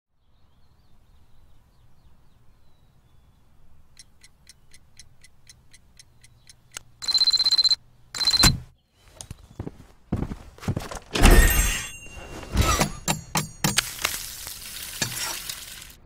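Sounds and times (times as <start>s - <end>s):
alarm clock ticking: 4.0s - 8.6s
alarm clock bell ringing: 7.0s - 8.5s, 11.3s - 12.3s.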